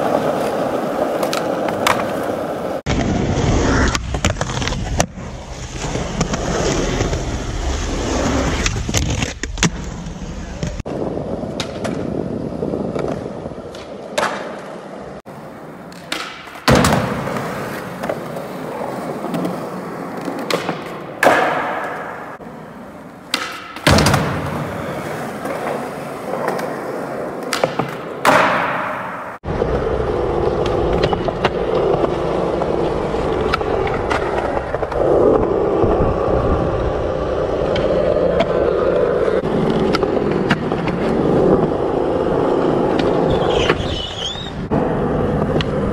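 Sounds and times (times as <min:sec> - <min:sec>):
skateboard popping and landing clacks: 0:00.0 - 0:02.8, 0:11.4 - 0:12.1, 0:12.9 - 0:22.5, 0:23.1 - 0:29.4
skateboard wheels rolling on concrete: 0:00.0 - 0:45.9.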